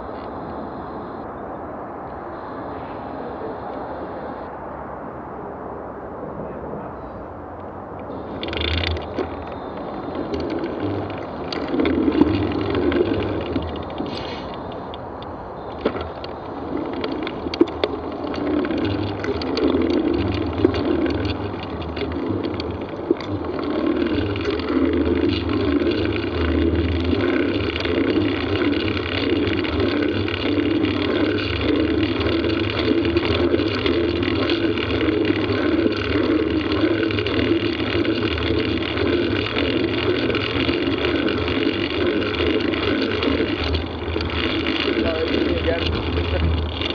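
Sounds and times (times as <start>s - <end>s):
bicycle tyres rolling rumble: 0.0s - 46.9s
sharp knocks and rattles: 15.7s - 46.9s.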